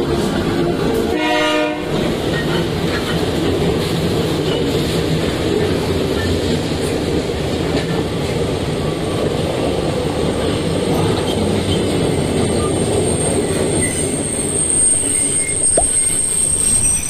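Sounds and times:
freight train rumbling past: 0.0 - 17.0
high-pitched squeal: 12.5 - 17.0.

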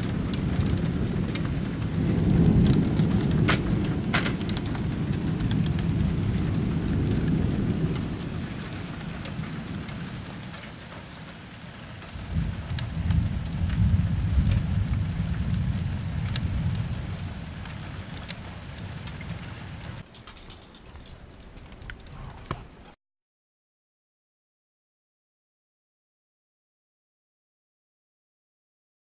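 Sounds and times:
thunder rumbling: 0.0 - 22.9
raindrops ticking: 0.0 - 23.0.

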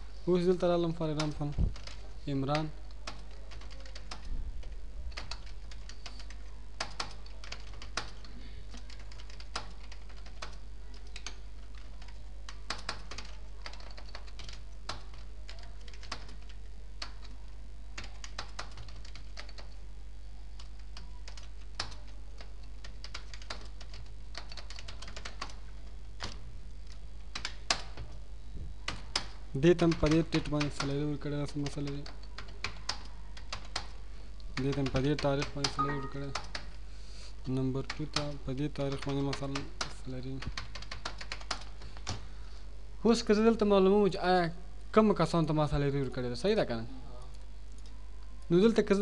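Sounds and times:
keyboard typing clicks: 1.1 - 19.8, 20.6 - 25.6, 26.2 - 28.2, 28.9 - 34.0, 34.6 - 36.8, 37.4 - 42.2.

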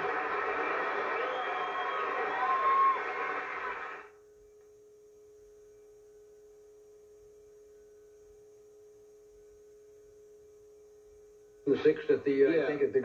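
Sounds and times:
faint electrical hum: 0.0 - 13.0.

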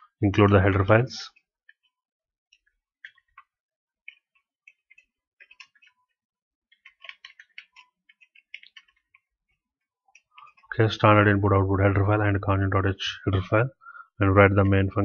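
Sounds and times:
keyboard typing: 1.3 - 10.7.

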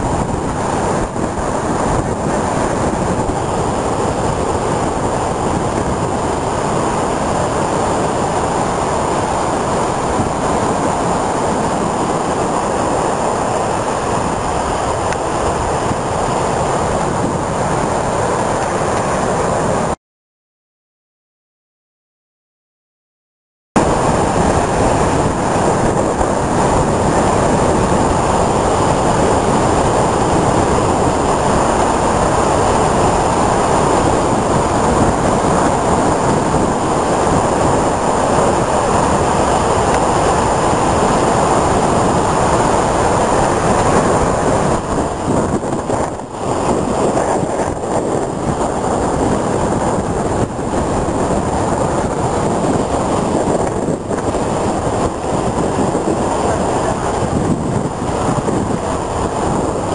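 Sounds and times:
surf crashing against sea wall: 0.0 - 20.0, 23.8 - 59.9.

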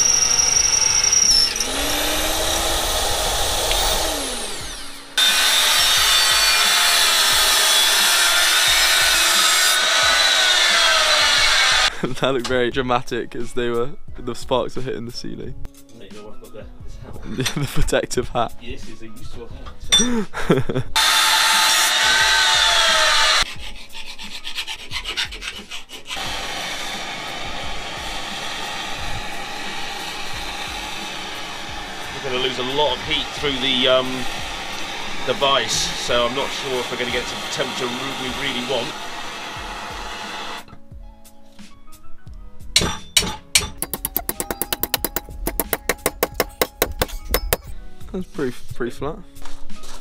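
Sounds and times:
angle grinder cutting metal: 0.0 - 11.9, 21.0 - 23.5, 25.4 - 40.7, 42.8 - 47.7
pillar drill boring metal: 0.0 - 11.9, 21.0 - 23.4, 26.1 - 40.7, 42.8 - 47.7
hand file scraping steel: 21.5 - 26.4, 42.8 - 47.7.

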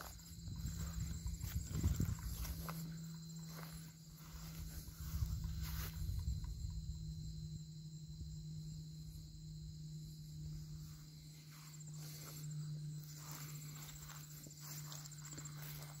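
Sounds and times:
footsteps on ground: 0.0 - 6.3, 11.0 - 16.0
insects chirring: 0.0 - 16.0
low steady hum: 0.0 - 16.0.

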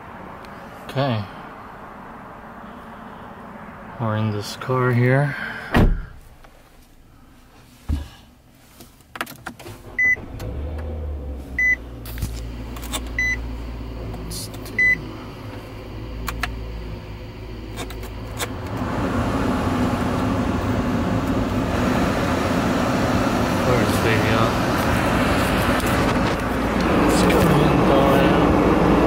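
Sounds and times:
car engine rumble: 0.0 - 29.0
dashboard warning chime: 11.6 - 11.8, 13.2 - 13.4, 14.7 - 15.1.

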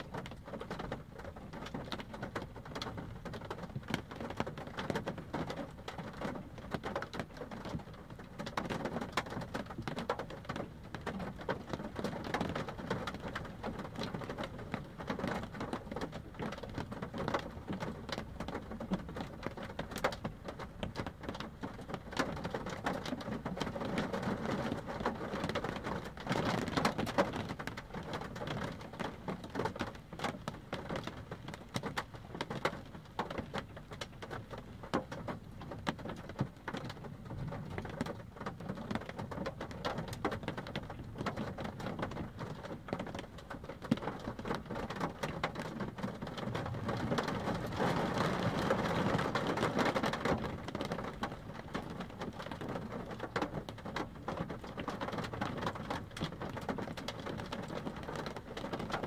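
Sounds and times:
rain pattering on car roof: 0.0 - 59.0.

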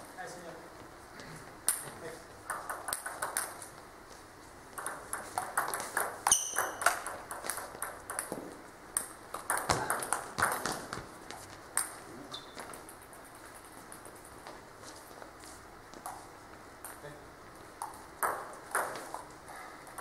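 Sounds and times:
table tennis ball clicking: 1.6 - 3.7, 4.7 - 14.4, 17.8 - 20.0
short squeak: 6.3 - 6.8.

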